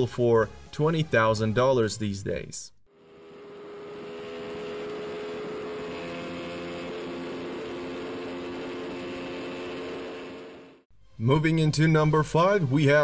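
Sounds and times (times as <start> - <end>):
motorcycle engine at high revs: 2.9 - 10.9.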